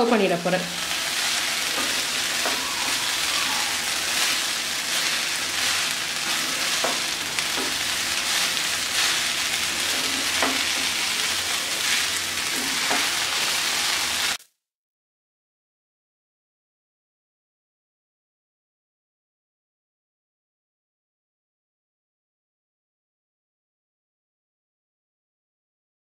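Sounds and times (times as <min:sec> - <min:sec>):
food sizzling in a pan: 0:00.0 - 0:14.5
spatula scraping a pan: 0:03.9 - 0:14.4.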